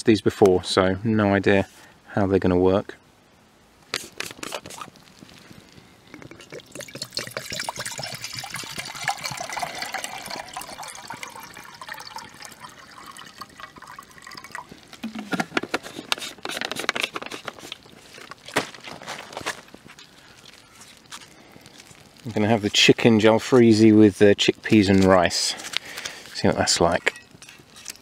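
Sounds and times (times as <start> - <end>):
water pouring into metal pot: 6.0 - 15.4
rustling: 14.9 - 23.8.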